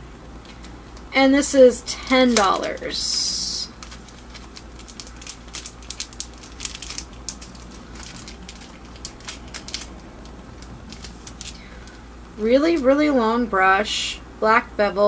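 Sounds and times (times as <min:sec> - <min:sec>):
packaging crinkling: 0:00.4 - 0:12.0.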